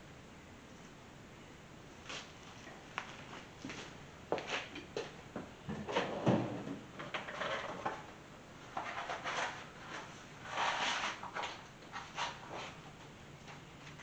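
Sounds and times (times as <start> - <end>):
scraping rustles of parts: 7.0 - 14.0.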